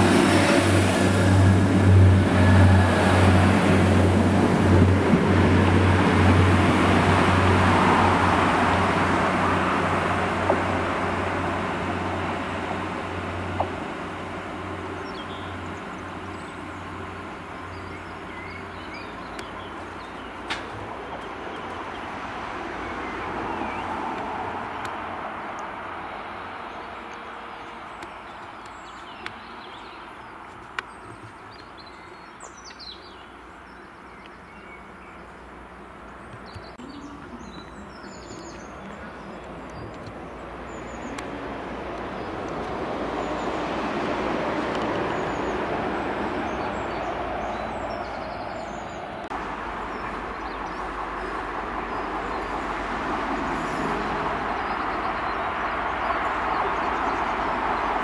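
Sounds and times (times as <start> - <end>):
diesel train engine running: 0.0 - 21.9
rail rumble: 0.0 - 30.4, 35.4 - 58.0
small birds chirping: 14.9 - 22.1, 26.7 - 43.6, 53.4 - 58.0.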